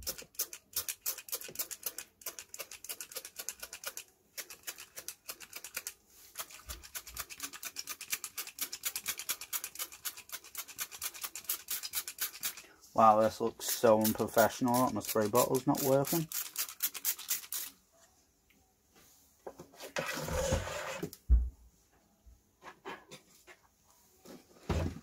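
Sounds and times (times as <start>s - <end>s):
spray bottle squirting: 0.0s - 12.7s, 13.6s - 17.8s.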